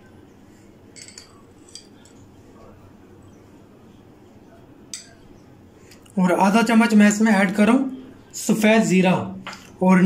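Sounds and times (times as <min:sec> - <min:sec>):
teaspoon clinking against glass: 0:01.0 - 0:02.2, 0:04.9 - 0:05.2.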